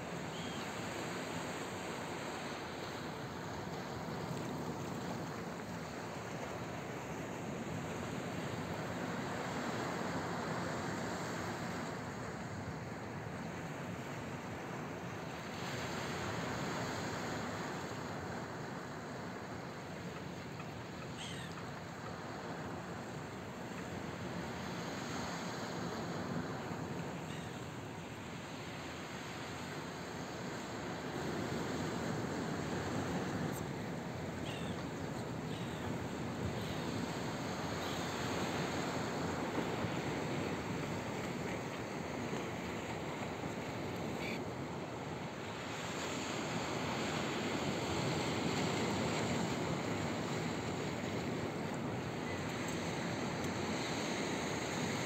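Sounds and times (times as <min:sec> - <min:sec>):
faint gull calls: 0:20.6 - 0:21.8, 0:27.2 - 0:27.7, 0:34.4 - 0:37.0, 0:44.2 - 0:44.4
gull call: 0:21.0 - 0:21.7, 0:34.5 - 0:34.8.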